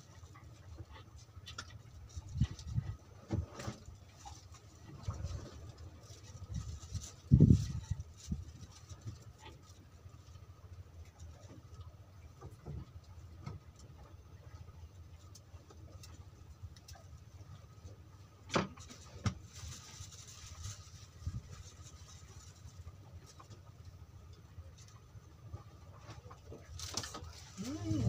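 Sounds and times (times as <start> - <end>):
low wind rumble on microphone: 1.8 - 9.5, 19.1 - 23.4, 27.3 - 28.0.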